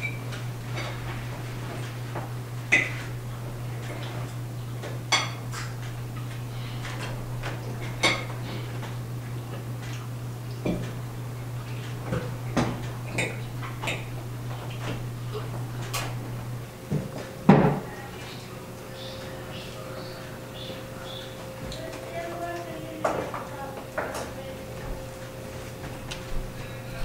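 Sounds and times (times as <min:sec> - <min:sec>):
cutlery clinking on plates: 0:05.1 - 0:05.7.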